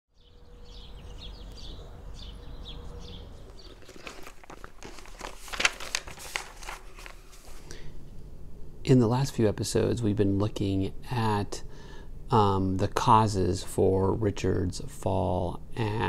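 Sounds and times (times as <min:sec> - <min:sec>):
birds chirping: 0:00.1 - 0:05.4
notebook pages flipping: 0:03.4 - 0:07.8.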